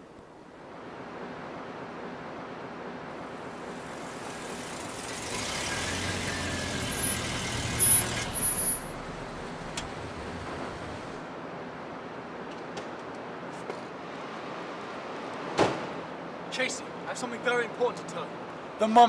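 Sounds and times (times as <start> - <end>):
car driving past: 3.3 - 11.2.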